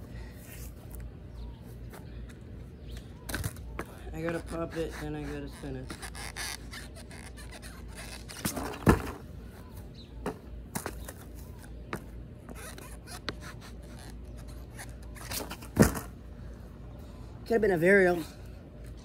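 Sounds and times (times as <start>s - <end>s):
skateboard knocks and thuds: 8.4s - 9.2s, 15.5s - 16.1s.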